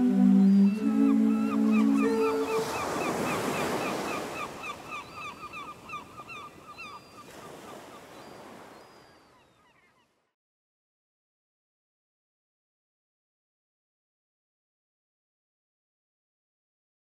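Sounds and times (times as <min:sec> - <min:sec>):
surf washing: 0:00.0 - 0:06.0.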